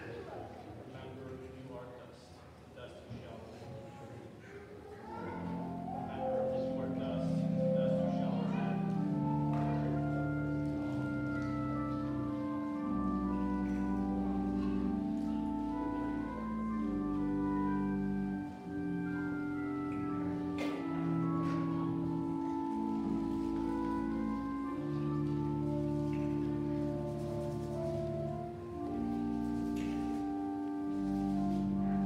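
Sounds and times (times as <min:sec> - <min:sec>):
organ playing slow chords: 0:05.2 - 0:32.0.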